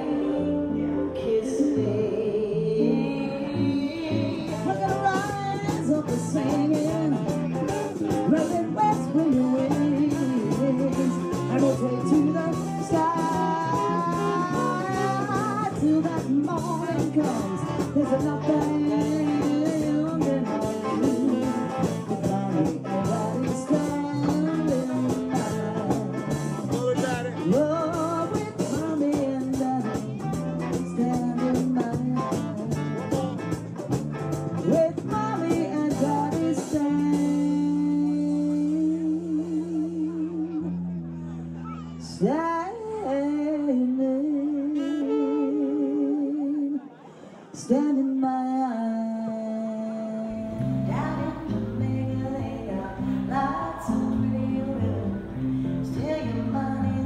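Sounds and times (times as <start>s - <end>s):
guitar band music: 0.0s - 41.9s, 50.3s - 57.0s
steady drum beat: 4.2s - 37.9s.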